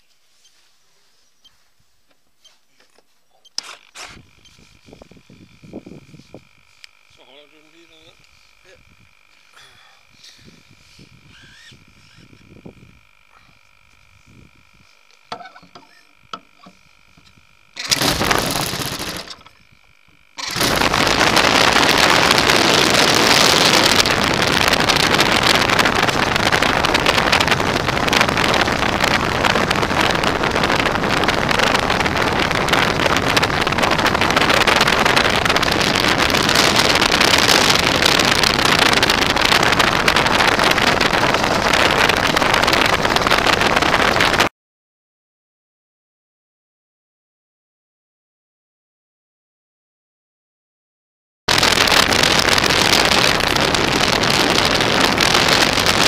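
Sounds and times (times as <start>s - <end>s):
model airplane engine running: 3.6s - 44.5s.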